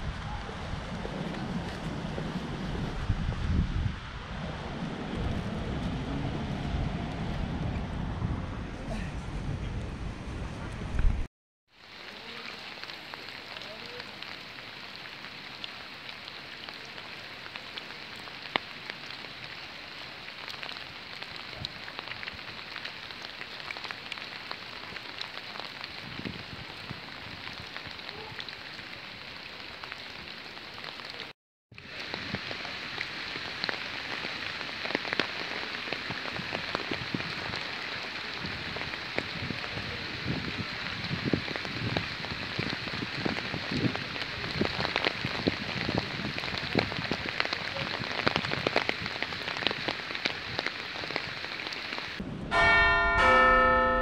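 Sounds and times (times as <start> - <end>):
rain falling on wet pavement: 0.0 - 8.4, 11.7 - 53.7.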